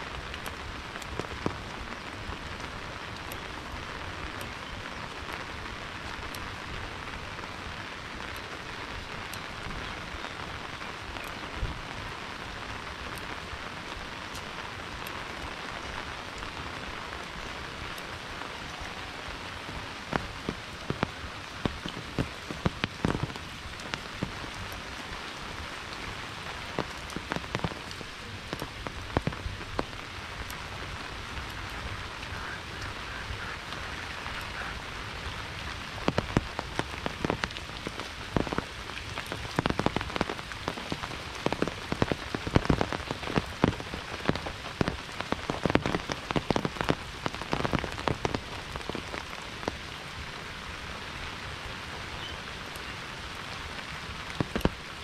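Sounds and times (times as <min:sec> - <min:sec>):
steady rain falling: 0:00.0 - 0:55.0
sharp close raindrop hits: 0:11.1 - 0:49.8, 0:53.7 - 0:55.0.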